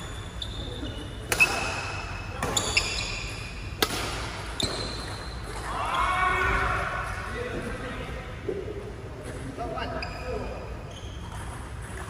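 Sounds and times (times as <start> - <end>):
shoes squeaking on court: 0.0 - 3.8, 4.4 - 5.6, 9.8 - 12.0
rackets striking shuttlecock: 1.2 - 2.8, 3.7 - 5.2.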